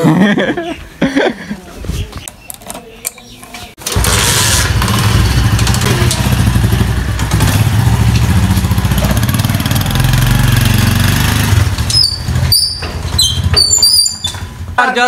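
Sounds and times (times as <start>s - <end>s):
motorcycle engine revving: 3.8s - 14.8s
short high squeaks: 11.8s - 14.5s.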